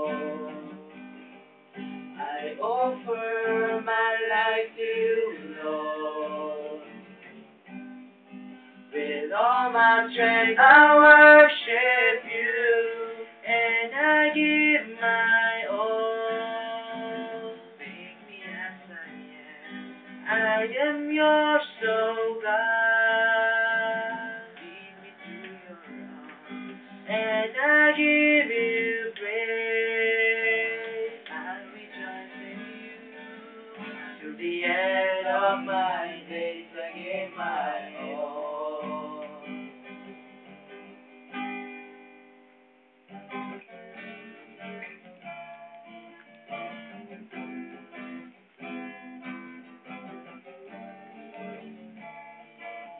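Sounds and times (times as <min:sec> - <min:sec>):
people singing: 0:00.0 - 0:01.0, 0:02.2 - 0:07.1, 0:09.0 - 0:19.7, 0:20.3 - 0:26.4, 0:27.1 - 0:39.7
acoustic guitar strumming: 0:00.0 - 0:52.9.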